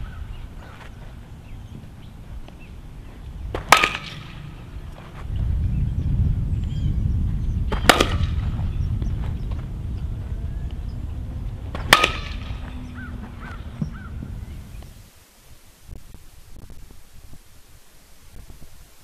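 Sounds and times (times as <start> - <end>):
wind rumble on microphone: 0.0 - 19.0
softball bat hitting ball: 3.5 - 4.8, 7.7 - 8.7, 11.7 - 12.8.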